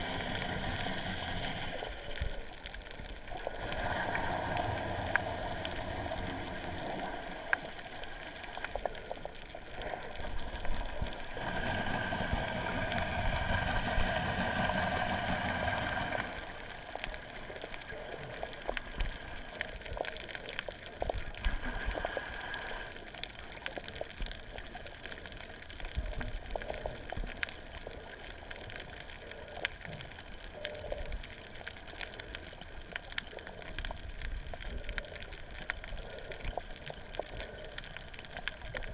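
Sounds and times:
muffled underwater wash: 0:00.0 - 0:38.9
underwater crackling clicks: 0:00.0 - 0:38.9.

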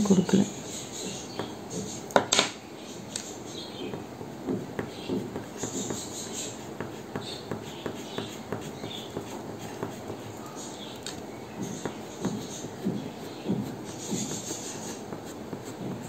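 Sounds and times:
pencil scratching on paper: 0:04.8 - 0:10.9, 0:11.5 - 0:16.0
pencil tap: 0:06.8 - 0:10.3, 0:11.0 - 0:16.0.

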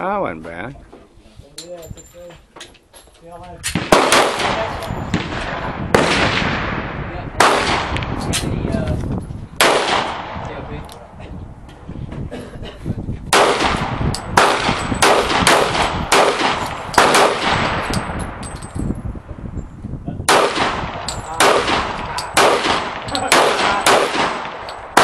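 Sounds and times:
revolver gunshots: 0:03.7 - 0:08.3, 0:09.6 - 0:10.7, 0:13.3 - 0:18.2, 0:20.3 - 0:25.0.

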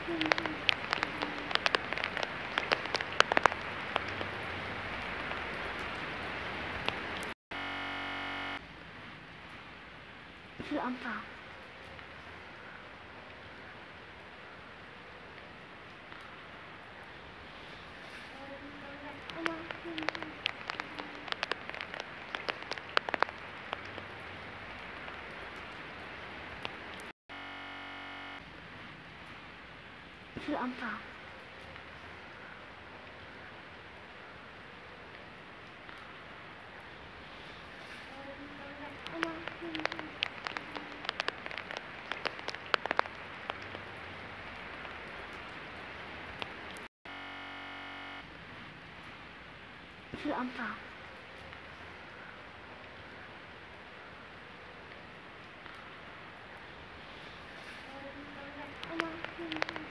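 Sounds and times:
loud raindrops striking close by: 0:00.0 - 0:59.9
rain falling: 0:00.0 - 0:59.9
flat steady noise: 0:07.5 - 0:08.6, 0:27.3 - 0:28.4, 0:47.1 - 0:48.3.

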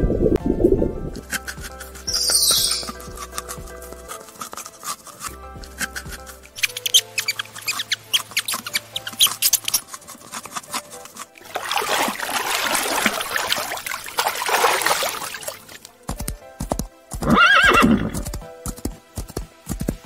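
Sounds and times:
hooves clip-clopping: 0:01.2 - 0:13.4, 0:14.8 - 0:20.0
rushing water: 0:06.6 - 0:16.0
horse neighing: 0:17.2 - 0:18.2.

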